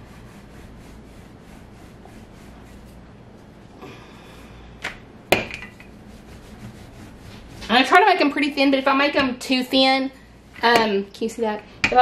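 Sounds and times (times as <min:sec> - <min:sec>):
rolling pin rolling dough: 0:00.0 - 0:03.6, 0:05.3 - 0:09.6.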